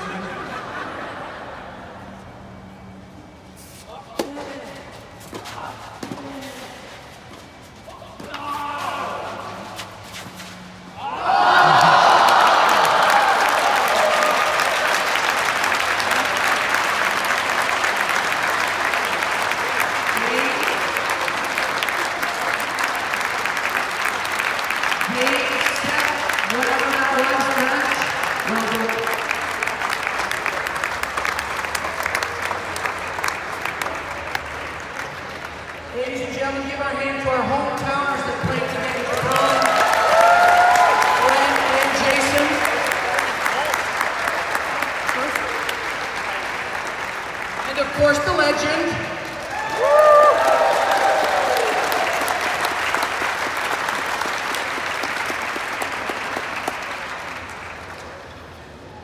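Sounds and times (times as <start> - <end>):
crowd applauding: 11.2 - 36.1, 38.6 - 59.0
spectators clapping: 11.3 - 36.1, 38.5 - 58.9.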